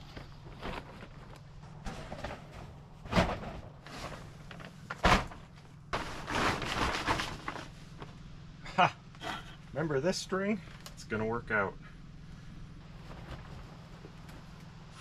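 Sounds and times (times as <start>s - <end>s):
plastic tarp rustling: 0.0s - 8.0s.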